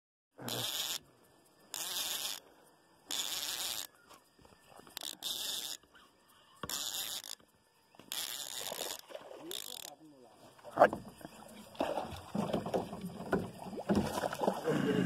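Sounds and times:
insects buzzing: 0.4s - 15.0s.

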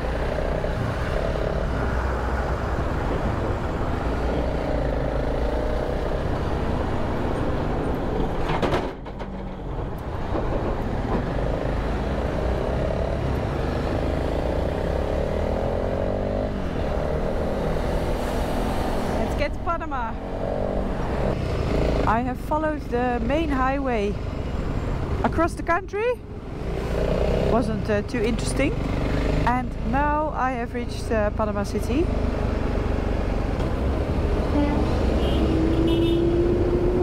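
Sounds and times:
motorcycle engine at low speed: 20.2s - 22.2s, 26.6s - 30.0s.

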